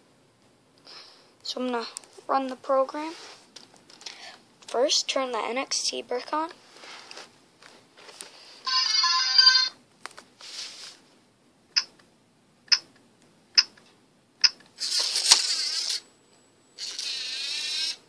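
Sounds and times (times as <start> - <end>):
robot motors whirring: 14.8 - 16.0, 16.8 - 18.0.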